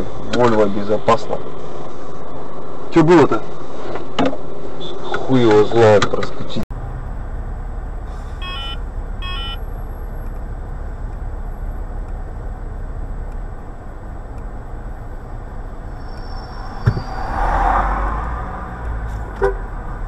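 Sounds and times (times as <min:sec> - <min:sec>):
car engine and traffic rumble: 0:00.0 - 0:20.0
faint electronic beeps: 0:08.4 - 0:09.7, 0:15.8 - 0:17.4.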